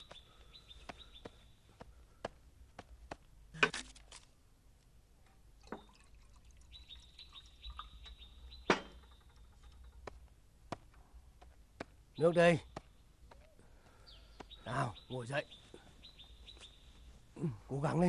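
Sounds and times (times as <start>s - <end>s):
water pouring into a cup: 5.6s - 7.9s.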